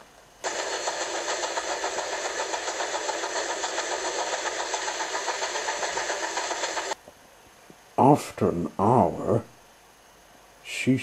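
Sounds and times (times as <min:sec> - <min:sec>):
steam train chuffing: 0:00.4 - 0:07.0.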